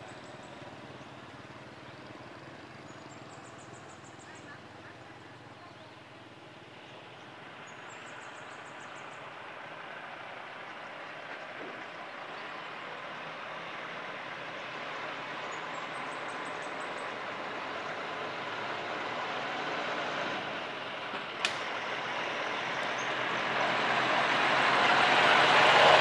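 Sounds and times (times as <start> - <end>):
diesel truck engine: 0.0 - 26.0
sharp click: 21.4 - 21.7.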